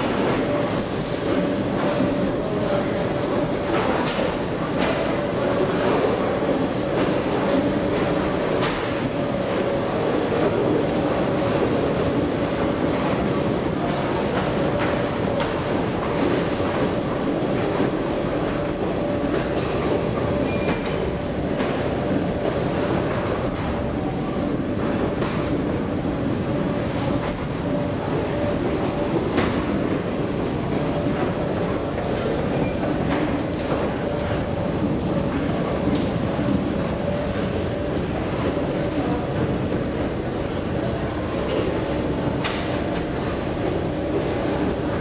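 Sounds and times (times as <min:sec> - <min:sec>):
constant hum: 0:00.0 - 0:45.0
underground station rumble: 0:00.0 - 0:45.0.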